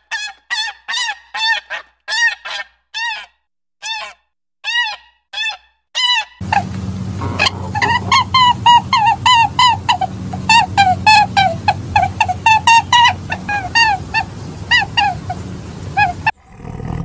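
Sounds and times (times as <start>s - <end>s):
swan honking calls: 6.4s - 16.4s
low hum with hiss: 6.4s - 17.0s.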